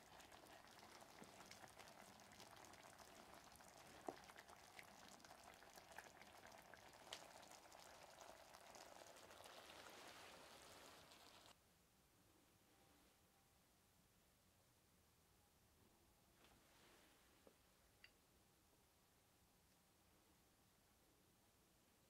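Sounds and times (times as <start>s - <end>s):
broth bubbling in a pot: 0.0s - 11.6s.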